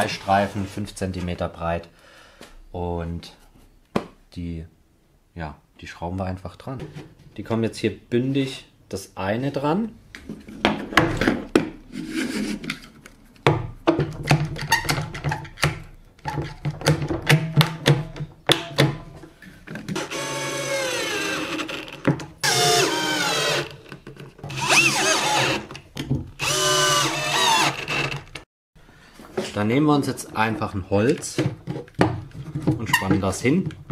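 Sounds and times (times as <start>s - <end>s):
cordless drill driving screws: 20.0s - 21.8s, 22.4s - 23.8s, 24.5s - 25.7s, 26.4s - 28.3s.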